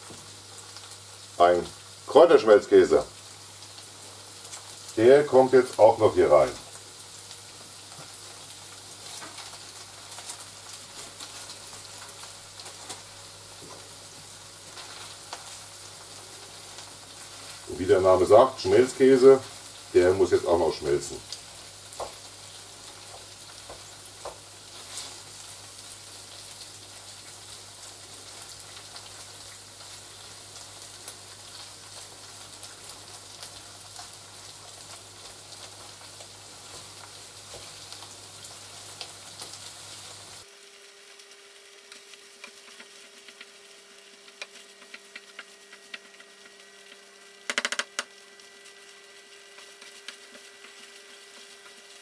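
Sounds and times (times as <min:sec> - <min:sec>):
food sizzling in a pan: 0:00.0 - 0:52.0
wooden spatula scraping: 0:24.7 - 0:25.3.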